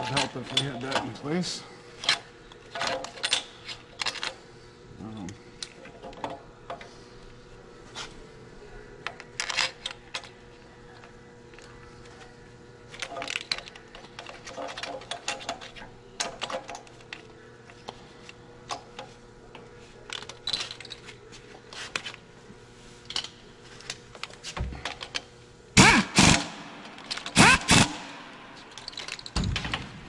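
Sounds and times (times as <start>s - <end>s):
hand tools and metal parts rattling: 0.0s - 4.4s, 12.9s - 22.2s, 23.0s - 29.8s.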